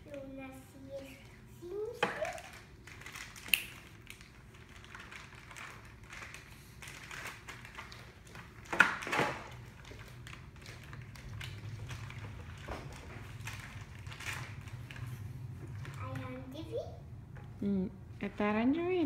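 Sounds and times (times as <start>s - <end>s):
plastic bag crinkling: 2.2s - 16.1s.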